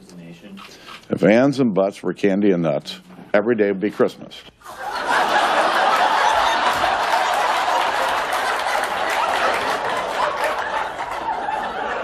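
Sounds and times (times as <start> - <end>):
audience laughing and applauding: 4.7 - 12.0.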